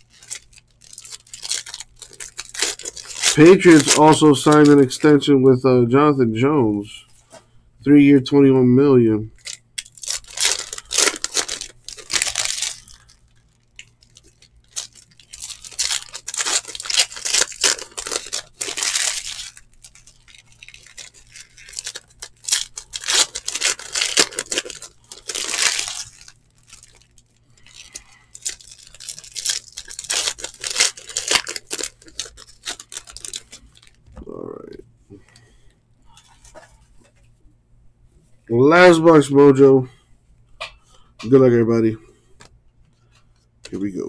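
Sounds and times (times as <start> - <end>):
foil wrappers tearing and crinkling: 0.0 - 5.2, 9.4 - 34.0.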